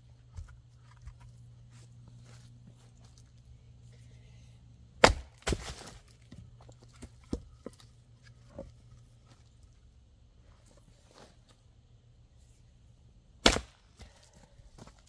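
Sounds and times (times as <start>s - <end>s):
firewood splitting crack: 5.0s - 6.4s, 13.4s - 14.2s.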